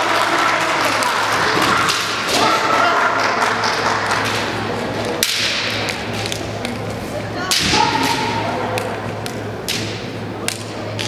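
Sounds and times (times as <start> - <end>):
fencers shouting: 0.0 - 3.5, 7.4 - 9.0
steady low hum: 0.0 - 11.0.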